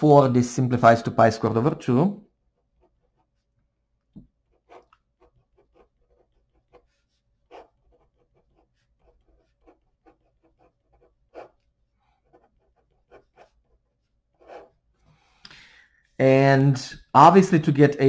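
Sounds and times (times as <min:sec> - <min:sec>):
pen scratching on paper: 0:02.4 - 0:03.6, 0:04.3 - 0:15.3.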